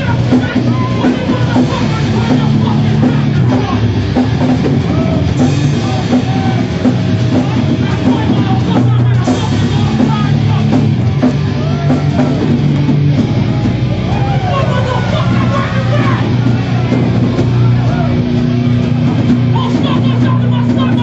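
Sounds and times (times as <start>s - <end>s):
punk band playing live: 0.0s - 21.0s
person shouting: 14.1s - 17.0s.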